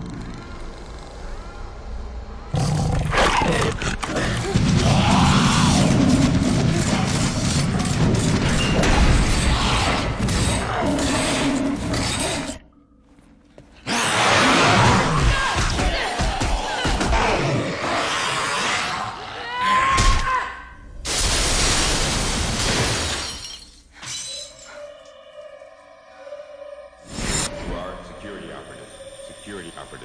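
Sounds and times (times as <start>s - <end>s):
dogs growling: 2.5s - 12.8s
tense orchestral score: 24.7s - 30.0s.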